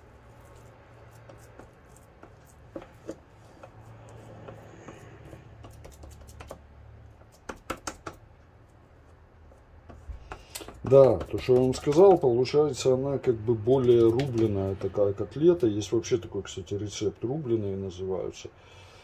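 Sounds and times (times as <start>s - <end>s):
soft hand handling noises: 0.0s - 16.2s
light clicks and taps: 9.8s - 12.2s, 13.8s - 14.9s.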